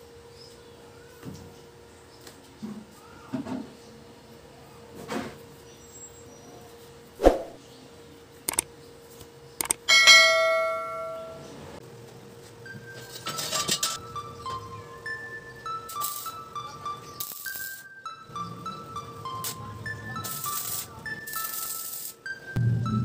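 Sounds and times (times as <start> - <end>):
mouse clicks: 9.6 - 9.8
bell ding: 9.9 - 11.5
steel bars clattering on metal: 13.2 - 14.0.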